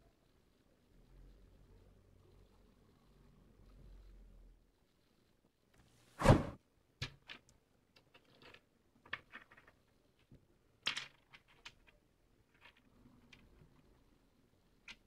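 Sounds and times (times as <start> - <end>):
pebbles clicking on a tabletop: 7.0 - 14.0, 14.7 - 15.0.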